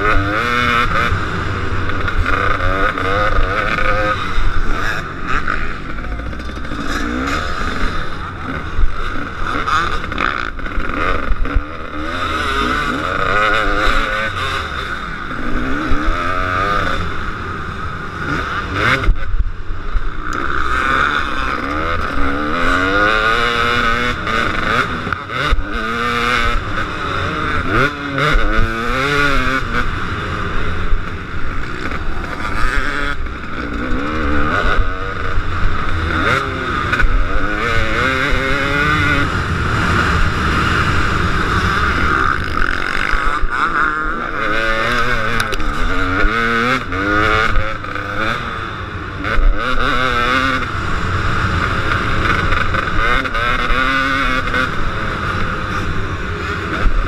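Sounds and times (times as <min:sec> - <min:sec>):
motocross bike engine revving: 0:00.0 - 0:57.0.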